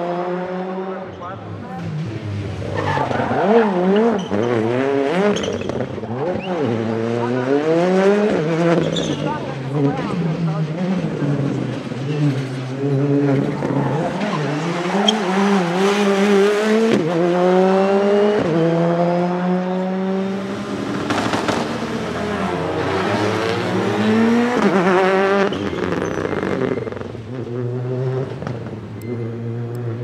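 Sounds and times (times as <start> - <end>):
rally car engine accelerating: 0.0 - 30.0.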